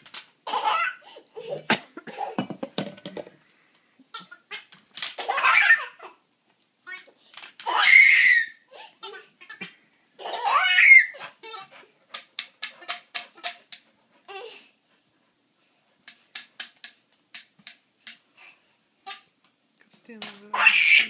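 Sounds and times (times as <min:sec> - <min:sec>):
toddler laughing: 0:00.5 - 0:02.4, 0:04.1 - 0:06.2, 0:06.9 - 0:11.8.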